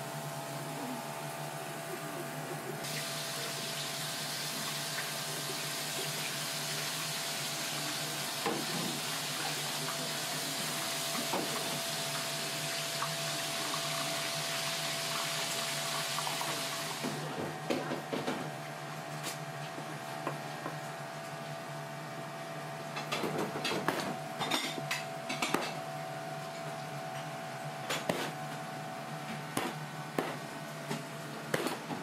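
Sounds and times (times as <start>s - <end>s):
electrical hum: 0.0s - 32.0s
water running from a tap: 2.9s - 17.2s
knife on plastic cutting board: 28.0s - 28.4s, 31.5s - 31.9s.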